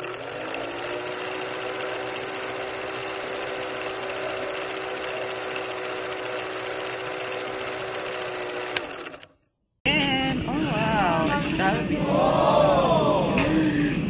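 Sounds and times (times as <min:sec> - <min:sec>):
mechanical hum: 0:09.9 - 0:14.0.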